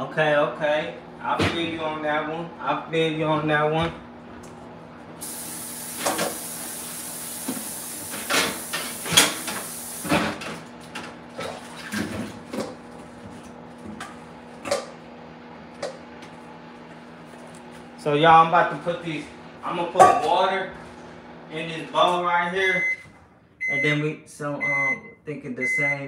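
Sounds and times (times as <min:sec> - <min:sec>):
kitchen tap running: 0:05.2 - 0:10.5.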